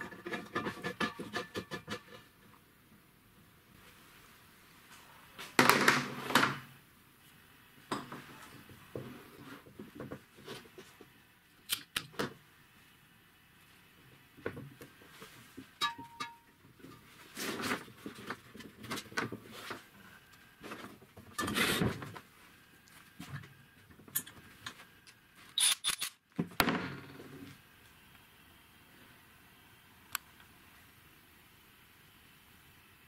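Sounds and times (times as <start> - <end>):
parts scraping and rustling: 14.8 - 22.3
brief squeak: 25.6 - 26.1.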